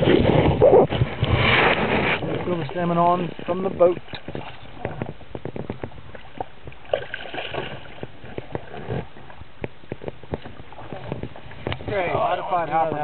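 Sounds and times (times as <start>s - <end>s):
water splashing against boat: 0.0s - 13.0s.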